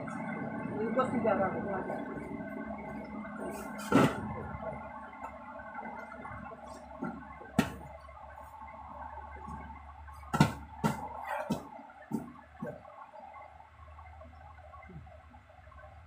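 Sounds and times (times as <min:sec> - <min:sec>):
steady low hum: 0:00.0 - 0:16.0
dull thumps: 0:07.0 - 0:08.1, 0:09.4 - 0:12.9.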